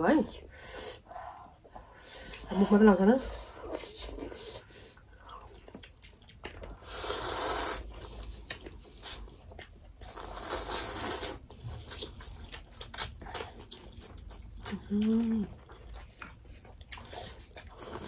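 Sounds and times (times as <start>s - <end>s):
wet chewing clicks: 5.0s - 6.8s
noodles slurped: 6.7s - 8.4s.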